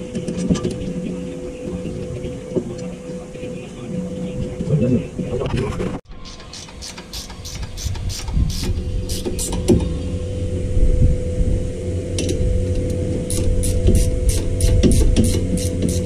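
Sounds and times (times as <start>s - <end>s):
steady low hum: 0.0s - 16.0s
spanner clicking on metal: 6.3s - 9.6s.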